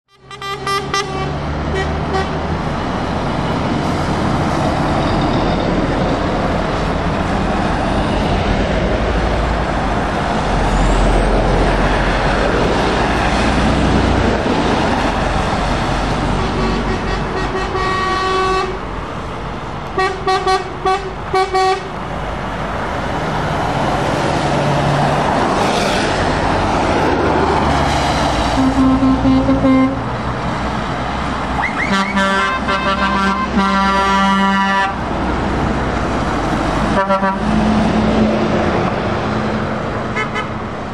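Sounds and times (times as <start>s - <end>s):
lower-pitched horn toots: 0.1s - 2.4s, 16.3s - 18.8s, 20.0s - 21.9s, 28.5s - 30.0s, 31.6s - 35.0s, 36.9s - 37.6s
vehicles driving on wet road: 0.1s - 40.9s
lorry air horn: 28.6s - 30.0s, 31.9s - 35.0s.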